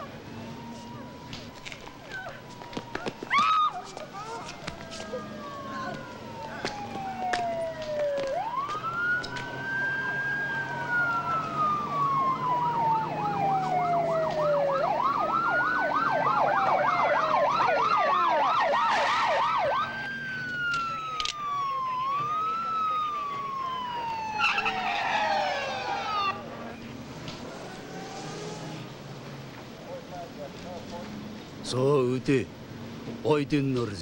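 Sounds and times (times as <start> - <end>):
police sirens wailing: 0.0 - 31.7
siren yelping warble: 20.6 - 26.4.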